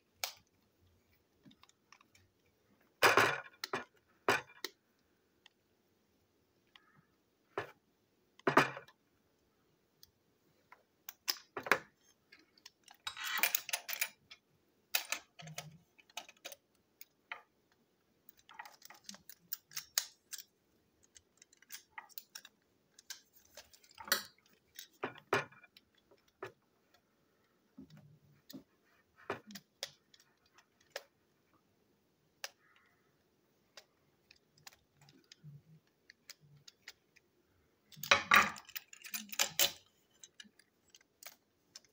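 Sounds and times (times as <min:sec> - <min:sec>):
plastic and metal clicks and scrapes: 0:11.1 - 0:17.5, 0:18.3 - 0:31.2, 0:33.6 - 0:37.3, 0:37.9 - 0:41.9.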